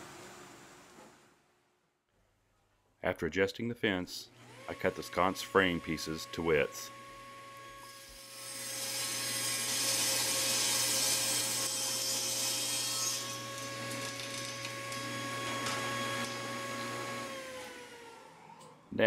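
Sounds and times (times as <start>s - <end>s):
table saw motor whine: 4.4s - 18.9s
saw blade cutting wood: 7.8s - 18.1s.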